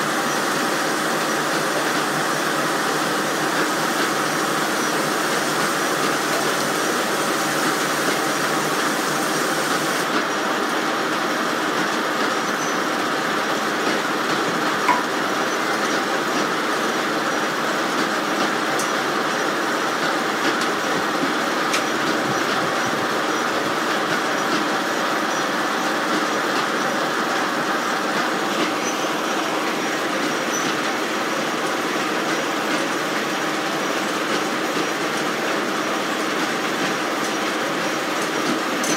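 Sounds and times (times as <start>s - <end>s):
circular sawmill running: 0.0s - 38.9s.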